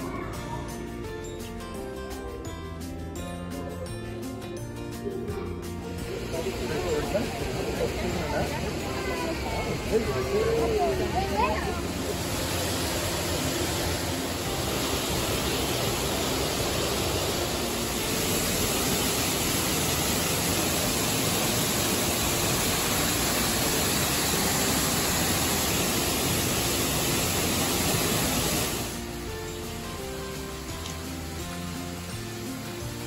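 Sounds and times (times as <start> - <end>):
falling water rushing: 0.0 - 1.0, 5.7 - 33.0.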